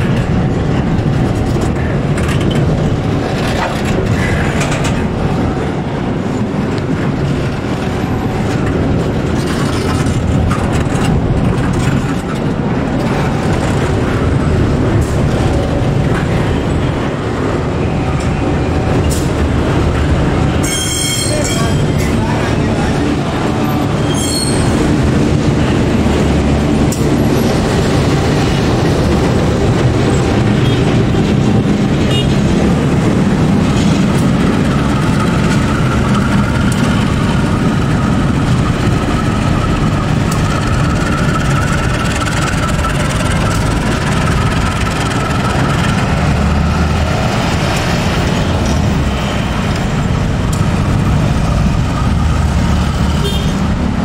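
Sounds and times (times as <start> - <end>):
locomotive engine rumble: 21.3 - 54.0.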